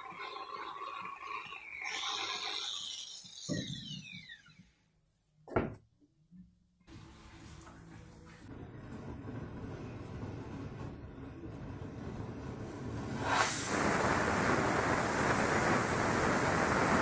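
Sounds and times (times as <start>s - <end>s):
angle grinder whine: 0.0s - 4.8s
steady noise: 6.9s - 17.0s.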